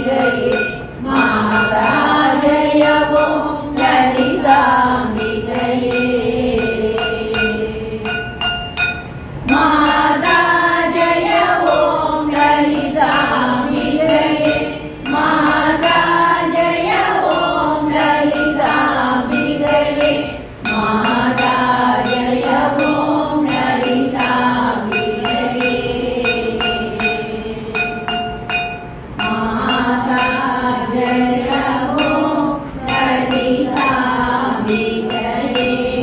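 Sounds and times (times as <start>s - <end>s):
group singing devotional song: 0.0s - 36.0s
metallic ringing strokes: 0.0s - 36.0s.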